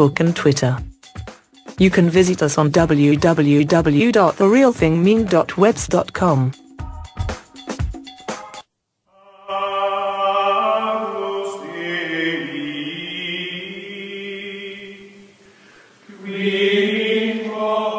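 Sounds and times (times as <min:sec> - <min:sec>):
choir singing chant-like chords: 0:09.1 - 0:17.9.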